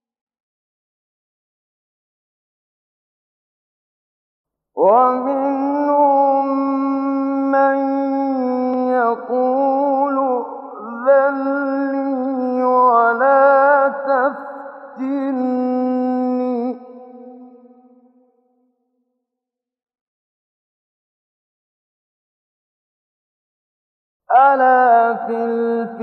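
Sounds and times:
man chanting melodically: 4.8s - 17.6s, 24.3s - 26.0s.

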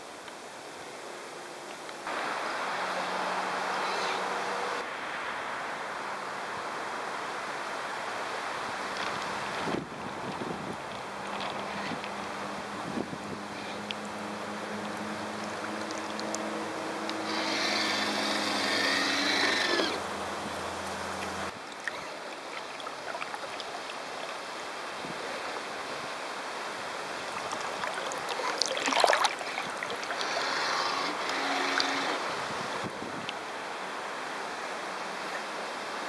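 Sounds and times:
water rushing along a boat hull: 5.6s - 36.0s
sharp splash: 27.4s - 30.2s.

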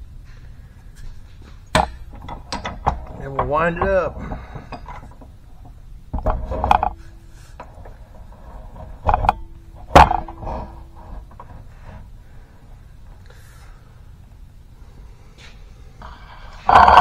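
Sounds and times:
metal scraping and clinking: 1.0s - 12.1s, 16.0s - 17.0s.

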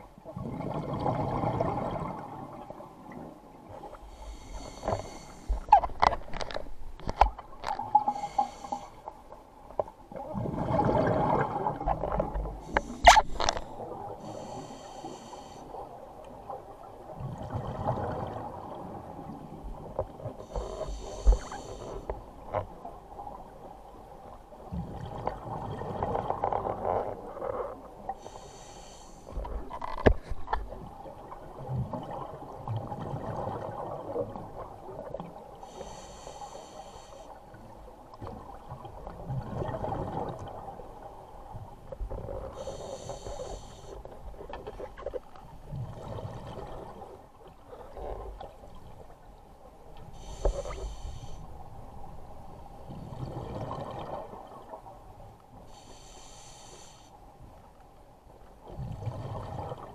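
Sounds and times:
exhaled bubbles burbling: 0.3s - 2.6s, 10.3s - 12.3s
regulator hissing inhale: 4.0s - 5.7s, 8.0s - 9.1s, 12.6s - 15.8s, 20.4s - 22.2s, 28.2s - 29.4s, 35.6s - 37.6s, 42.5s - 44.1s, 50.1s - 51.6s, 55.7s - 57.2s.

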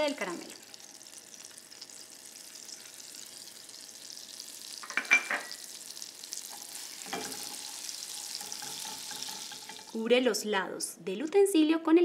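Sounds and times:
butter and sugar sizzling: 0.0s - 10.5s
spoon scraping a metal pan: 8.2s - 10.0s.

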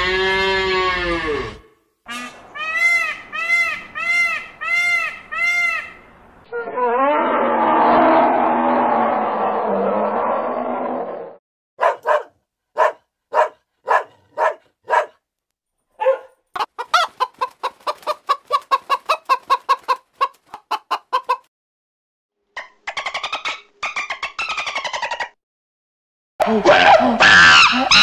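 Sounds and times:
chickens clucking: 16.6s - 21.5s.

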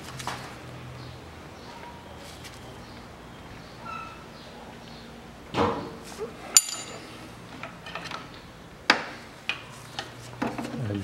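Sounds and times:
tools rattling clatter: 6.5s - 7.2s
wrench ringing clink: 6.6s - 7.1s.

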